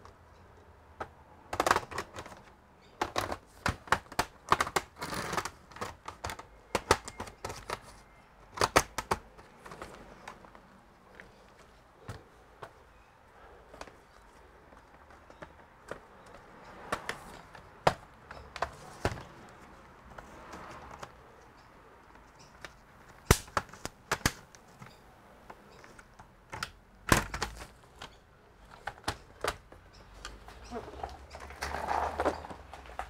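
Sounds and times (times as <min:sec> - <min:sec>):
sharp clicks and knocks of laptop: 0:01.0 - 0:13.0, 0:13.7 - 0:21.2, 0:22.0 - 0:31.4
rustle: 0:29.9 - 0:33.0.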